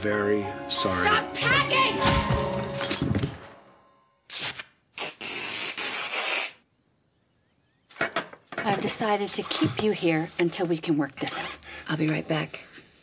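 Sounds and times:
dramatic music: 0:00.0 - 0:04.0
duct tape ripping: 0:04.3 - 0:06.6.

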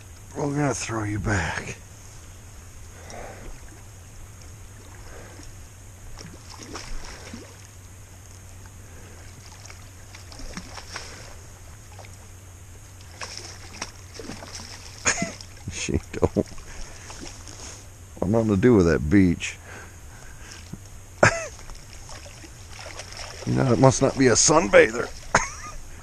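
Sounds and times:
steady low hum: 0:00.0 - 0:26.0
fish splashing at surface: 0:06.1 - 0:07.7, 0:09.4 - 0:12.2, 0:13.0 - 0:15.7, 0:21.6 - 0:25.4.

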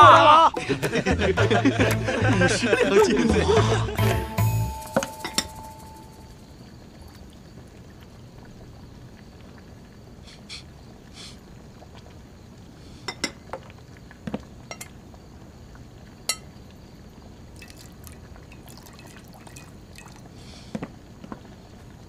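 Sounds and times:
clinks against crockery: 0:13.1 - 0:13.4, 0:14.7 - 0:14.9, 0:16.3 - 0:16.5.

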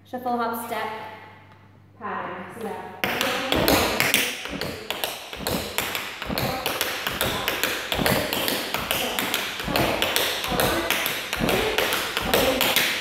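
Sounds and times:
tap shoes on wooden floor: 0:03.0 - 0:13.0.

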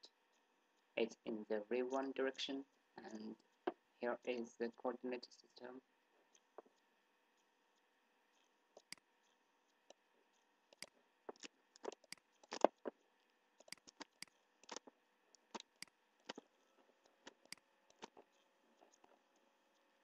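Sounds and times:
faint steady hum: 0:00.0 - 0:20.0
computer mouse clicking: 0:06.3 - 0:19.9.

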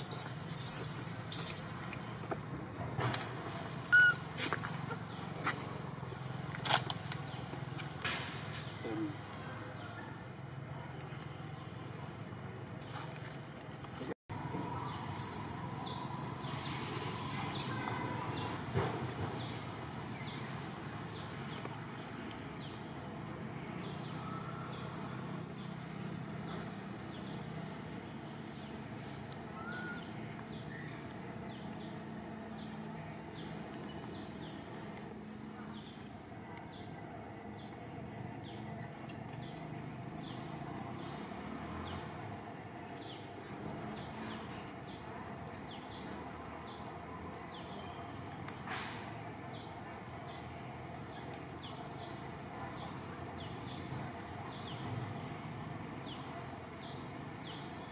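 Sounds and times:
high-pitched chirps: 0:03.9 - 0:04.2.

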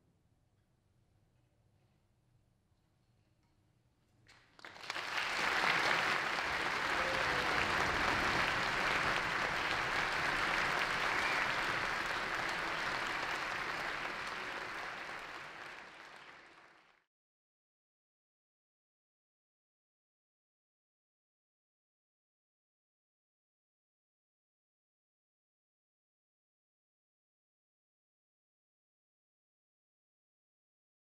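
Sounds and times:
audience applauding: 0:04.5 - 0:17.0.

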